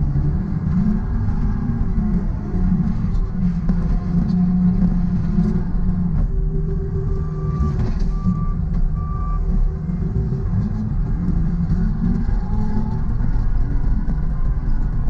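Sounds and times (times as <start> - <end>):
diesel engine running: 0.0 - 15.0
reversing alarm beeps: 7.0 - 9.6.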